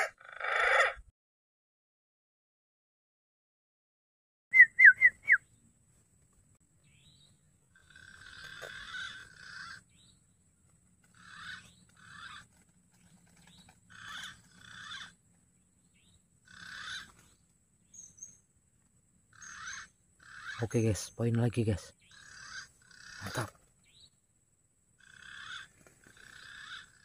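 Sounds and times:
pigeons calling: 0.0s - 1.0s, 6.9s - 10.3s, 10.9s - 15.3s, 15.9s - 18.4s, 19.3s - 24.1s, 25.0s - 27.0s.

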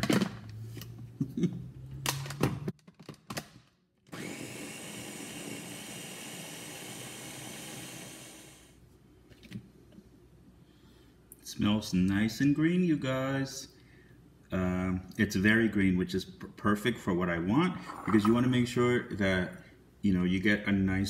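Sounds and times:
blender running: 4.1s - 8.7s.

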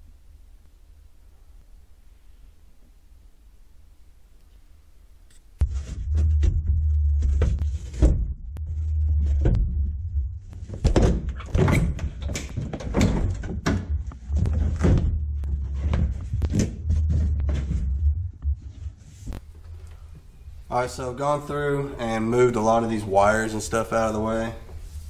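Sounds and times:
low steady hum: 0.0s - 25.0s
knocks and thumps: 5.6s - 19.5s.

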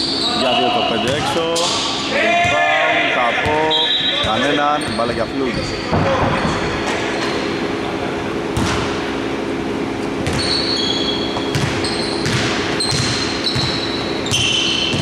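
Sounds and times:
sneaker squeaks on wooden floor: 3.5s - 6.1s, 10.2s - 15.0s
basketball bouncing on hardwood: 11.4s - 15.0s.

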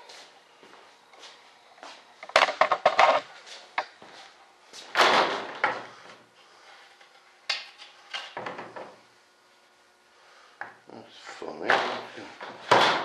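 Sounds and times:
objects knocking and clattering: 2.2s - 3.2s.

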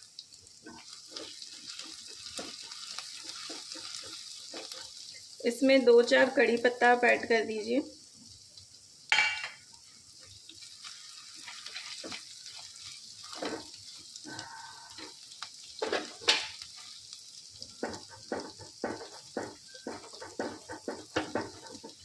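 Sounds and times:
spices sizzling in hot oil: 0.0s - 22.0s
spatula scraping a pan: 0.6s - 5.4s, 10.5s - 22.0s.

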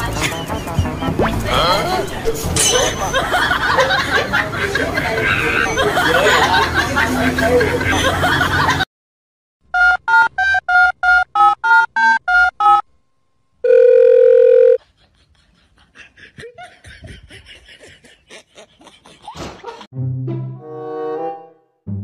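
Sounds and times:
steady telephone tone: 13.6s - 14.8s.

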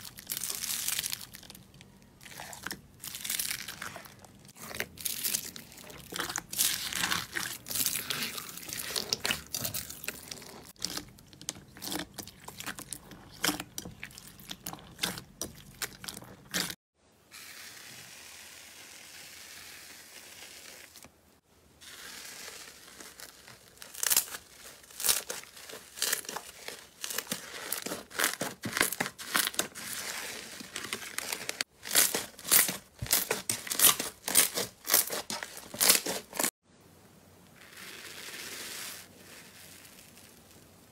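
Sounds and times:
stick stirring foamy slime: 2.2s - 16.8s, 21.8s - 36.5s
slime crackling and popping: 30.8s - 36.5s.

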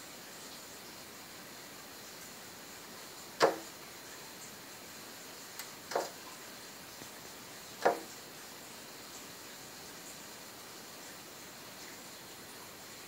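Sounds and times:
bird knocking on window glass: 3.4s - 3.7s, 5.9s - 6.2s, 7.8s - 8.1s.

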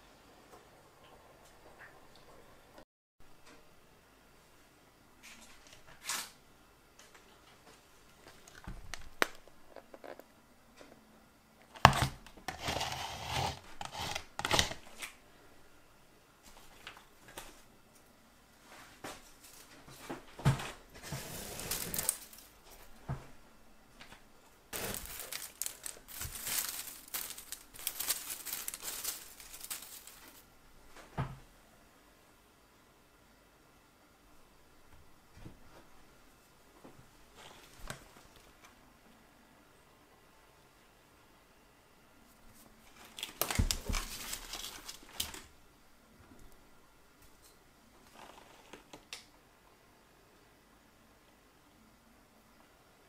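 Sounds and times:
paper crinkling and rustling: 11.7s - 15.2s, 19.2s - 23.0s, 24.8s - 30.5s, 42.5s - 45.5s, 48.1s - 49.0s.

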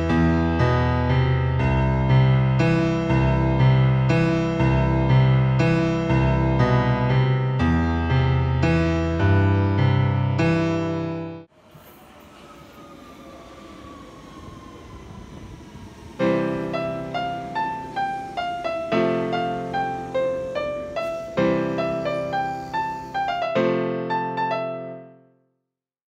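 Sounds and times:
solo piano melody: 0.0s - 11.5s, 16.2s - 25.5s
slowly falling tone: 11.5s - 25.1s.

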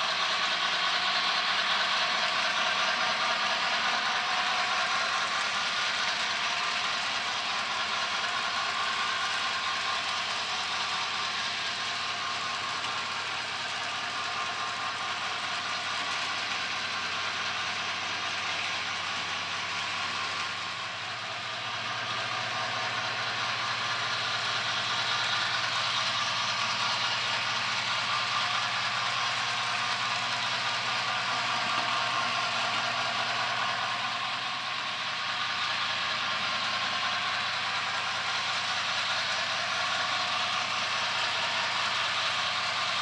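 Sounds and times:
model train wheels rolling on rails: 0.0s - 43.0s.

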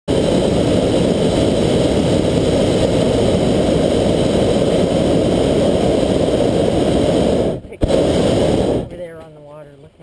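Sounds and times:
propane burner rushing: 0.1s - 9.2s.

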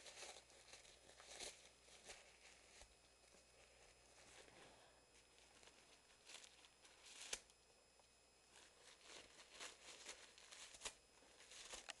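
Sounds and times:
paper rustling and tearing: 5.3s - 7.5s, 8.5s - 12.0s.

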